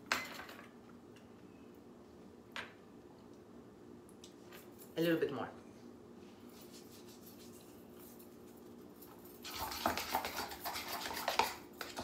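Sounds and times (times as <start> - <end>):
faint steady hum: 0.0 - 12.0
utensil scraping and clicking on bowl: 9.4 - 12.0.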